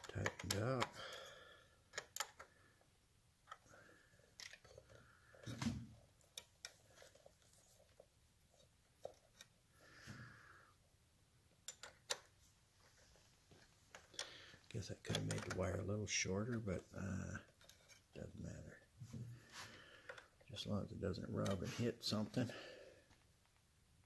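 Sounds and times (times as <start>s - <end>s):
clicks of wire terminals and wrench: 1.9s - 2.5s, 11.6s - 12.3s.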